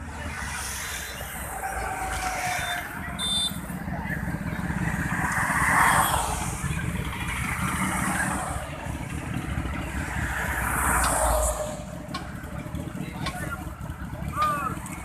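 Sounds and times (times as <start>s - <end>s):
motorcycle engines pulling away: 0.0s - 15.0s
road traffic: 0.0s - 15.0s.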